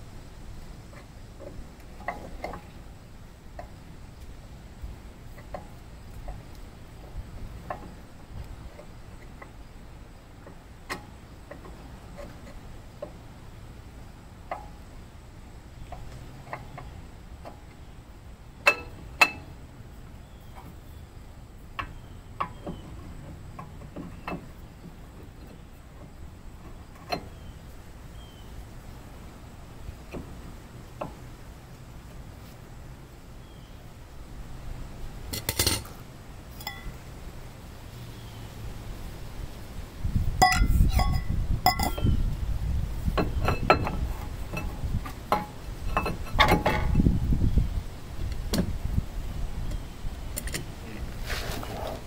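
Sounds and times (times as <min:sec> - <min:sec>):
metallic clinks and knocks: 0:35.3 - 0:36.0, 0:36.6 - 0:37.0, 0:40.4 - 0:42.2.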